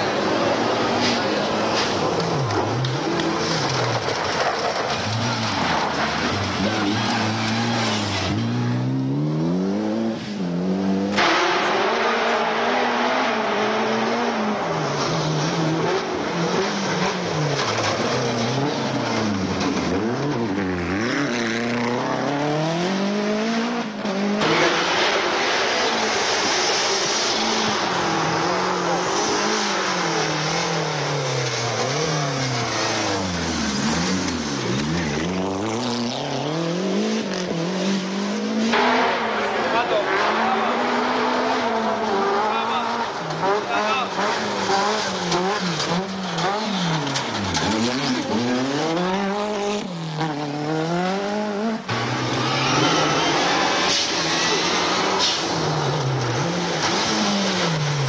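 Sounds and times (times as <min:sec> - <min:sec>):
rally car engines revving: 0:00.0 - 0:58.0.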